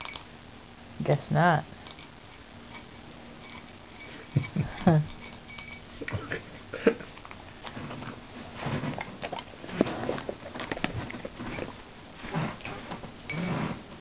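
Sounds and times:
puppy chewing: 1.8 - 13.2.

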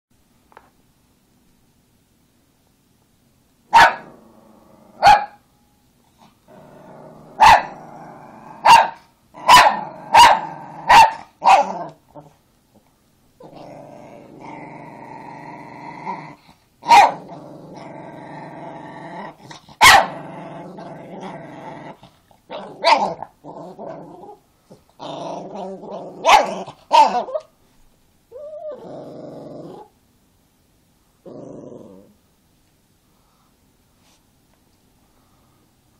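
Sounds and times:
small dog barking: 3.7 - 4.2, 5.0 - 5.4, 7.4 - 7.8, 8.6 - 11.9, 16.8 - 17.2, 19.8 - 20.2, 22.5 - 23.3, 26.2 - 27.5
small dog growling: 4.0 - 5.0, 6.2 - 8.8, 9.4 - 27.4, 28.3 - 30.0, 31.2 - 32.2.

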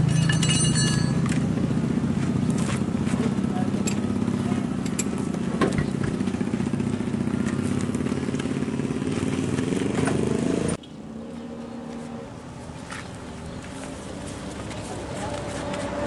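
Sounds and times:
engine running: 0.0 - 16.0.

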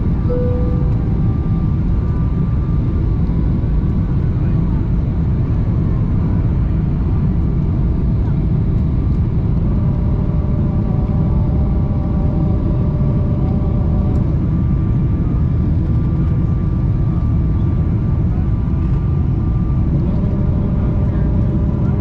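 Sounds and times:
faint steady whine: 0.0 - 2.3
airplane cabin rumble: 0.0 - 22.0.

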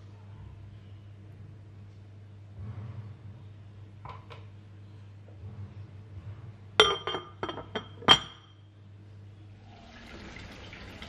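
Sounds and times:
glass lid clinking on ceramic pot: 6.8 - 8.5.

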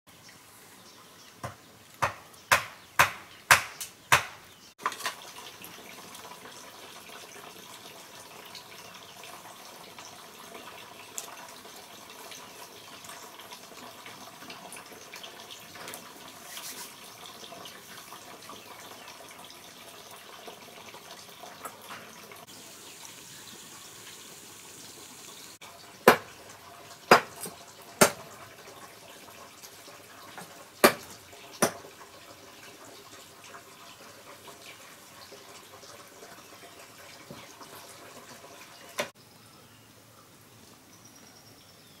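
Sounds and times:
sharp knocks: 1.4 - 4.4
running water trickle: 4.5 - 39.2.

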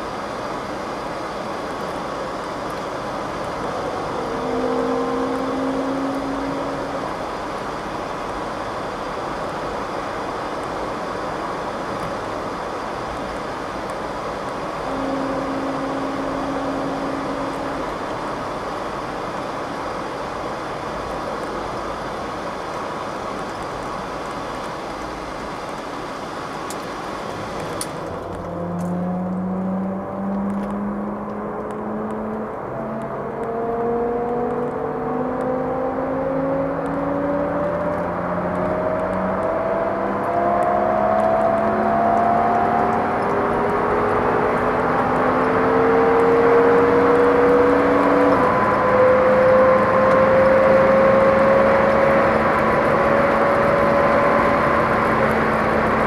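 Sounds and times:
tyre and road noise: 0.0 - 56.0
whining howl rising in pitch: 2.0 - 9.0, 14.5 - 20.1, 27.9 - 56.0.

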